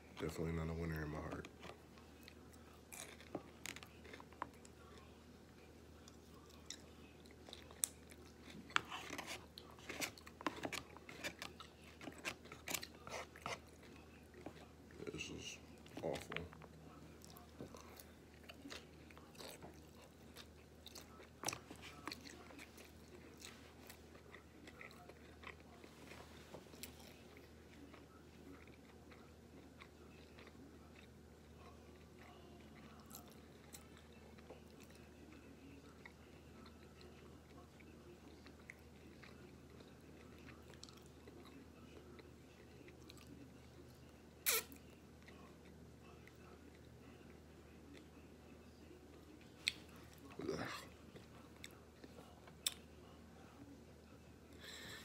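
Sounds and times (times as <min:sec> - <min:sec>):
person chewing: 0:06.0 - 0:35.2, 0:35.9 - 0:43.4, 0:49.2 - 0:52.9.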